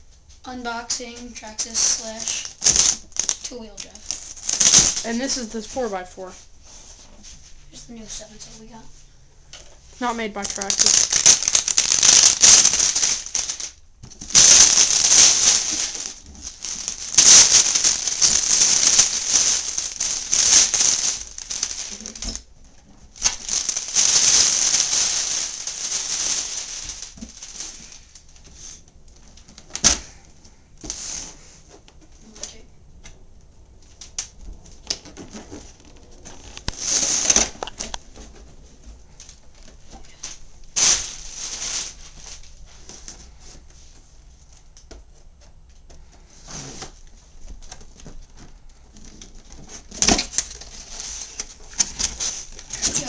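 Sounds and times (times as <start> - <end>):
plastic shrink-wrap tearing: 1.4 - 5.8, 10.0 - 28.8, 34.0 - 38.0, 39.6 - 42.6, 49.0 - 53.0.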